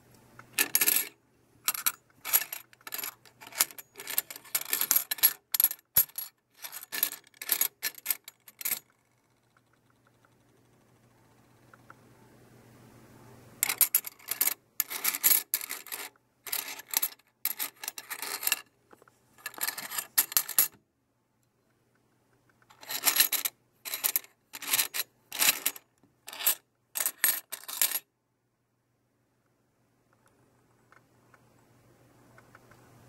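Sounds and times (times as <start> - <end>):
coins clinking: 0.6 - 8.9, 13.6 - 18.6, 19.4 - 20.8, 22.7 - 28.0.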